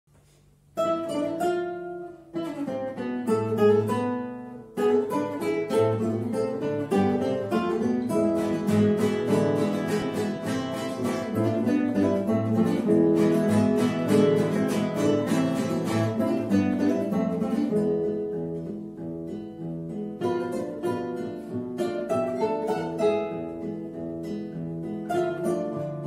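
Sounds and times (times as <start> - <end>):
classical guitars playing: 0.2 - 26.0.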